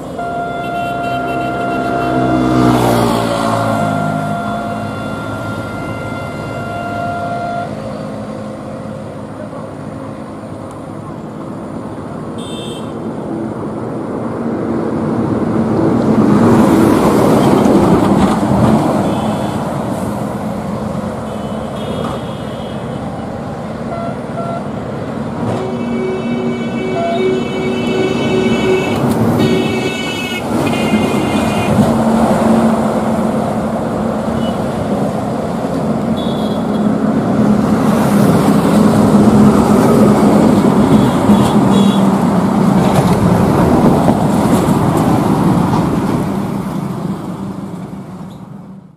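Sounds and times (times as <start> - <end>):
heavy vehicle passing: 0.0 - 12.3, 22.9 - 48.2
vehicle horn long tone: 0.1 - 8.0, 12.4 - 13.0, 21.3 - 23.1, 23.9 - 24.7, 25.5 - 31.9, 36.1 - 36.9, 40.9 - 42.1.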